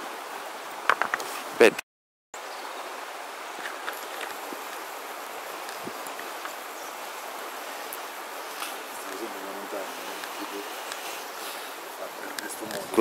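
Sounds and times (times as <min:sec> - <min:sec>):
soft outdoor hiss: 0:02.4 - 0:13.0
faint scattered clicks: 0:05.6 - 0:06.6, 0:10.2 - 0:11.1, 0:12.2 - 0:12.9.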